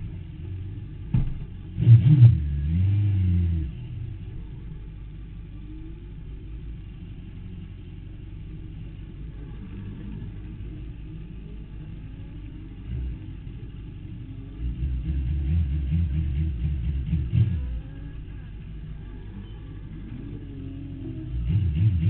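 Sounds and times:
motorcycle engine idling: 3.8s - 21.5s.

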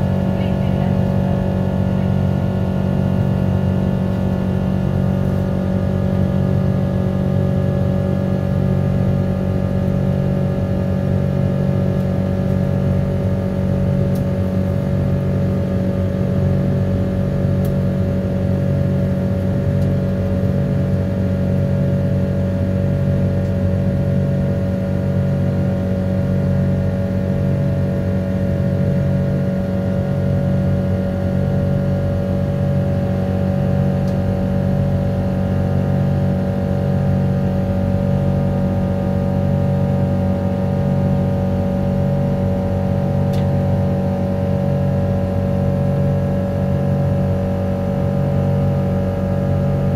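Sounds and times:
higher engine hum: 0.0s - 9.8s
jet engine cabin drone: 0.0s - 49.9s.

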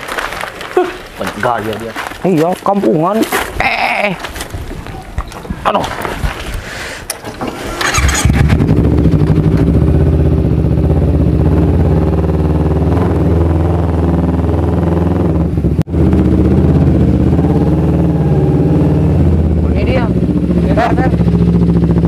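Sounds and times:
motorcycle engine running: 7.8s - 22.0s.

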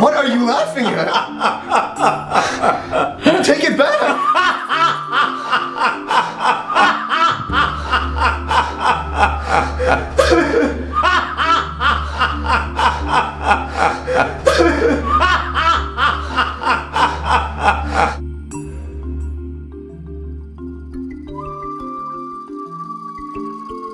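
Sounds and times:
man laughing loudly: 0.8s - 18.2s
low music drone: 1.1s - 23.9s.

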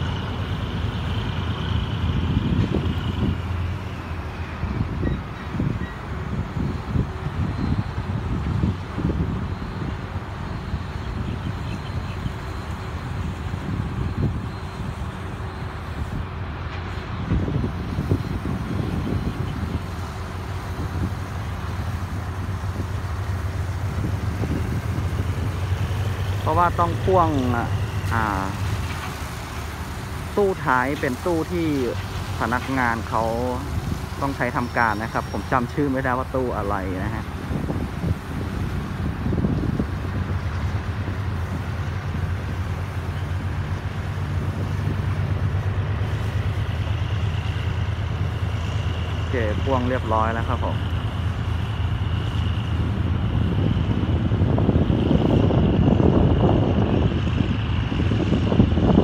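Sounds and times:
distant traffic: 0.0s - 59.0s
low engine hum: 0.0s - 59.0s.

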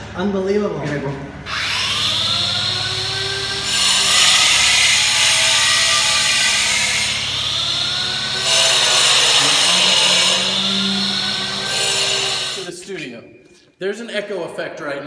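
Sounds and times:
power tool motor whine: 1.5s - 12.7s.

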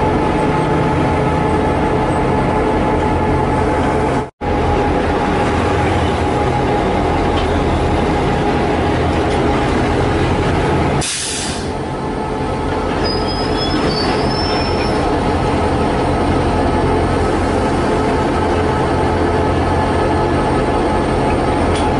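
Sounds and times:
locomotive engine drone: 0.0s - 21.9s
wheels rumbling on rail: 0.0s - 21.9s
high wheel squeal: 12.9s - 15.2s.

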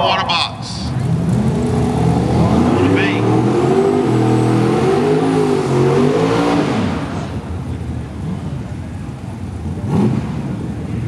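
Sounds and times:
car engine revving loudly: 1.2s - 7.4s, 9.7s - 10.6s.

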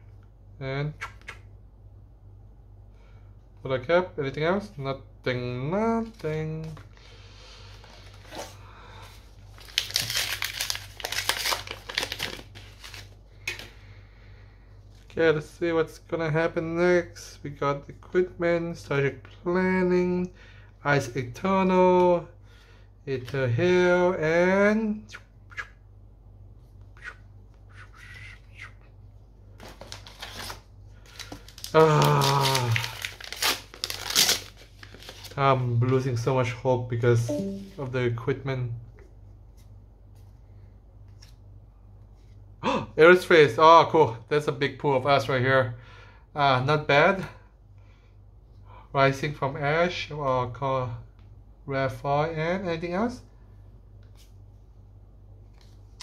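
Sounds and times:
foil wrapper crinkling: 9.5s - 13.7s, 29.6s - 35.4s
cards being handled: 9.6s - 13.8s.

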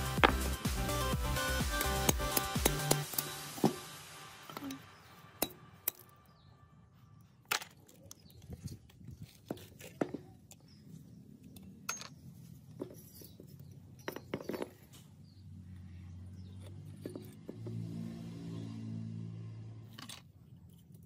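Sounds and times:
metal parts and tools clinking: 11.4s - 15.0s, 19.9s - 21.0s.

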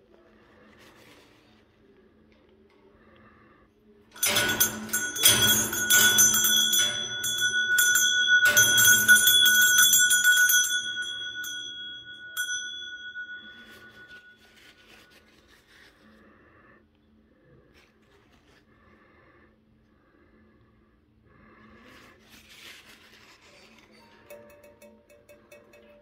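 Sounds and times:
small brass bell ringing: 4.2s - 14.7s, 24.3s - 26.0s.

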